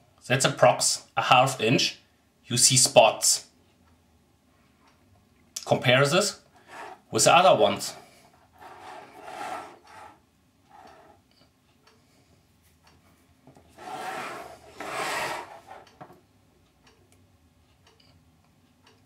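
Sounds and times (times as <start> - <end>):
plastic sheet rubbing and scraping: 13.8 - 15.8.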